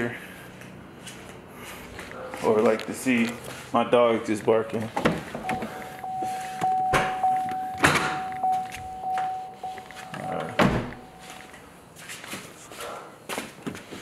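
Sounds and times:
car door and trunk clunks: 5.0 - 11.2
car warning chime: 5.4 - 11.7.

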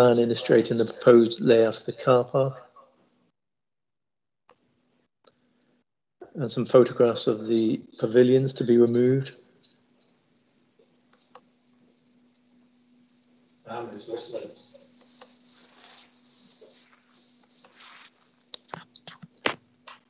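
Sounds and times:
faint low hum: 6.2 - 17.0
high-pitched chirping whistle: 12.0 - 18.7.

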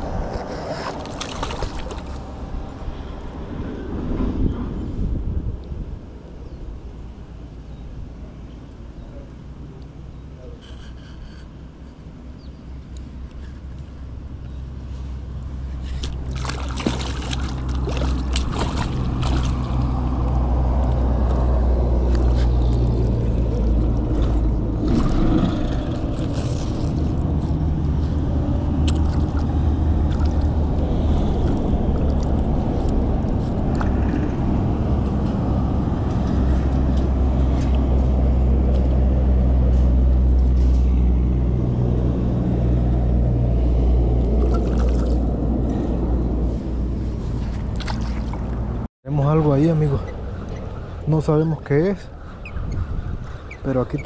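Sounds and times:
low motor rumble: 0.0 - 54.0.

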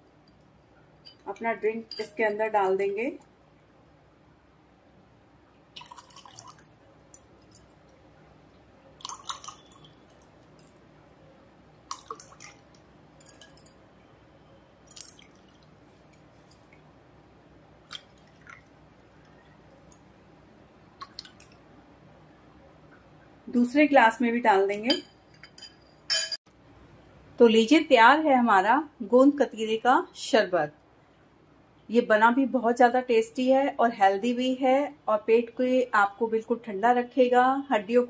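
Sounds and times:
liquid splashing into a glass: 5.8 - 6.7, 9.0 - 10.2, 11.9 - 13.7, 14.8 - 15.7, 17.9 - 18.7.

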